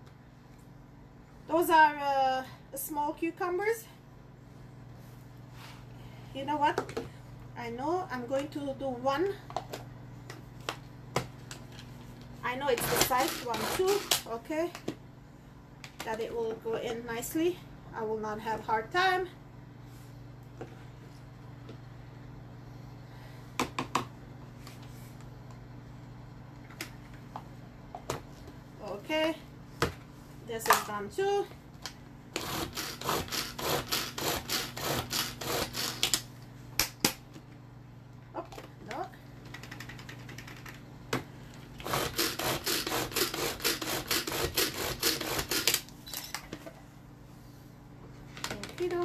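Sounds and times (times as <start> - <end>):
low steady hum: 0.0 - 49.0
pull-cord chopper whirring: 41.8 - 45.8.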